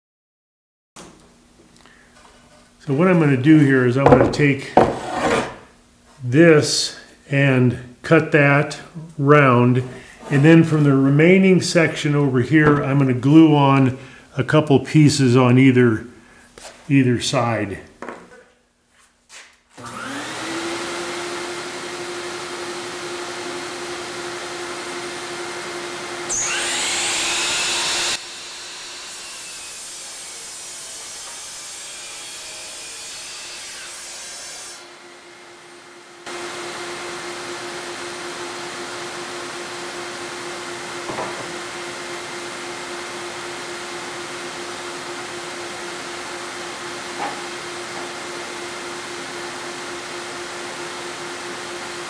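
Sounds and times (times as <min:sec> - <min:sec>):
dust vacuum humming: 0:19.8 - 0:30.0, 0:36.2 - 0:52.0
miter saw cutting wood: 0:19.8 - 0:35.5.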